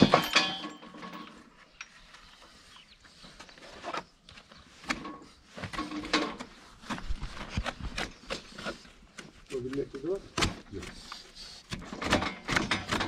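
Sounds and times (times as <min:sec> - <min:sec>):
metallic clang of steel crate: 0:00.0 - 0:01.4
knocks and scrapes of hoof trimming: 0:00.0 - 0:13.0.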